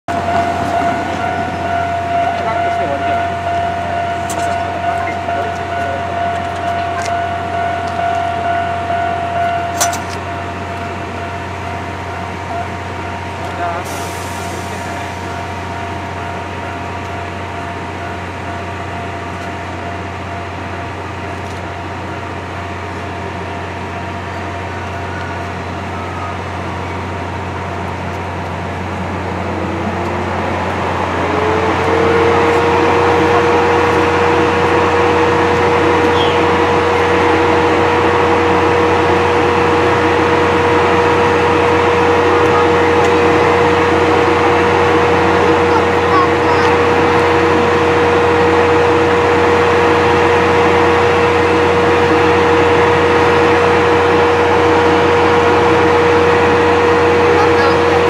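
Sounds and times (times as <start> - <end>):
steam locomotive moving slowly: 0.1 - 58.0
hiss of steam: 13.8 - 15.4.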